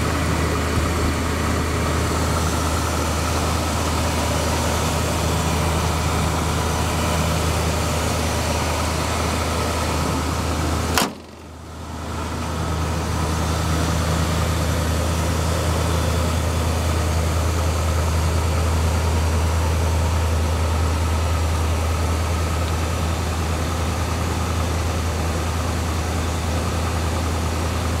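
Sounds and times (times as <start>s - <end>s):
car engine idling: 0.0s - 28.0s
car hood slamming: 10.9s - 11.6s.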